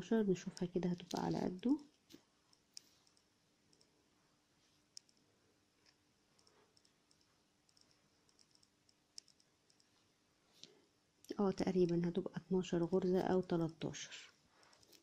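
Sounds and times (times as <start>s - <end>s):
hands handling yarn with clicks: 14.6s - 15.0s.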